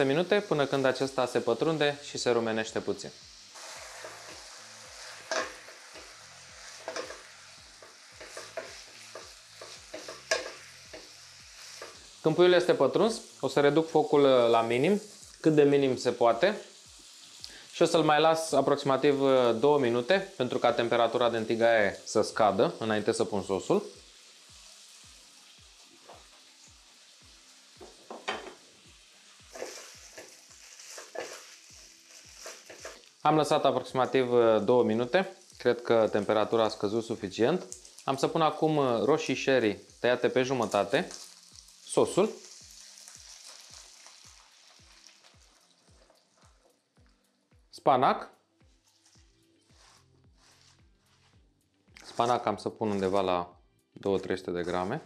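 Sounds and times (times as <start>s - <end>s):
chicken sizzling in oil: 0.0s - 47.2s
wooden spatula scraping pan: 3.6s - 12.0s, 29.5s - 33.0s.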